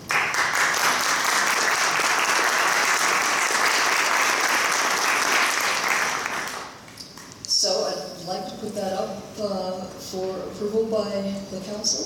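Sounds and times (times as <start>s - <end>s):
small group applauding: 0.0s - 7.3s.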